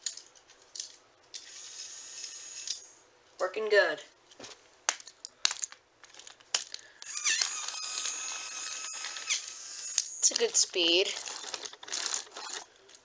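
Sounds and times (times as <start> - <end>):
toy engine motor whirring: 1.4 - 3.0, 7.0 - 12.7.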